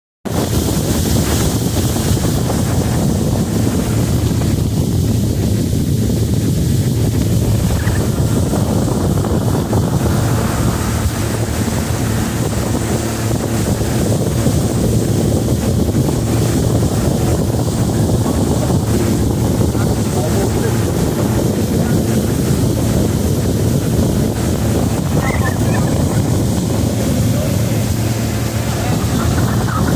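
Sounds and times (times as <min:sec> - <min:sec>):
wind buffeting microphone: 0:00.2 - 0:29.9
motorboat engine drone: 0:00.3 - 0:29.9.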